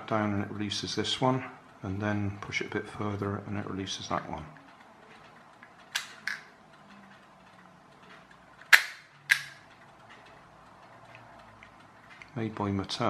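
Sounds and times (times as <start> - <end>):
plastic ratchet clicks: 5.2 - 6.6, 8.6 - 10.3.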